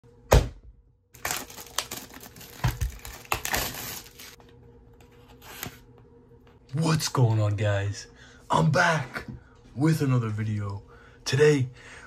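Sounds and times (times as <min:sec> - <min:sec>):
plastic shrink wrap crinkling: 0:01.2 - 0:04.4.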